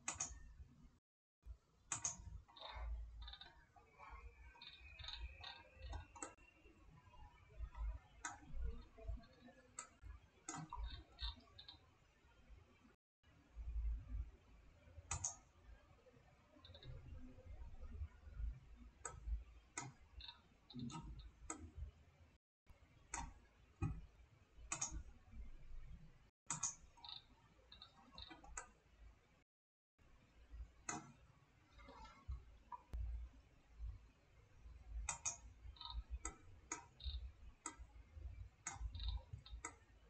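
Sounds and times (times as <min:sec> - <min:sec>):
computer mouse clicks: 0:00.0 - 0:00.6, 0:01.9 - 0:11.8, 0:15.1 - 0:15.5, 0:16.5 - 0:18.2, 0:18.8 - 0:21.8, 0:23.1 - 0:24.0, 0:24.7 - 0:25.2, 0:26.5 - 0:28.8, 0:30.8 - 0:33.1, 0:35.0 - 0:40.0.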